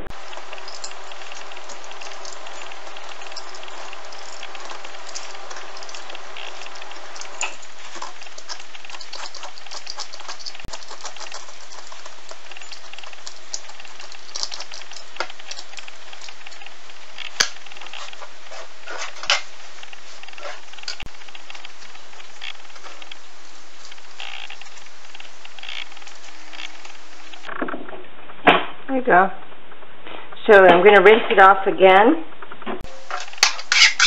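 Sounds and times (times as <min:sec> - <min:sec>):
vegetable peeler scraping skin: 0:33.4 - 0:34.0.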